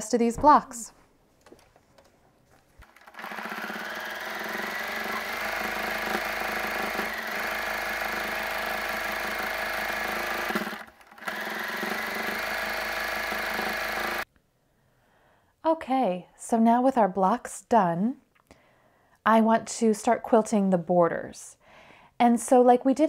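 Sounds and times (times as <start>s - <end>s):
sewing machine running: 2.8s - 14.2s.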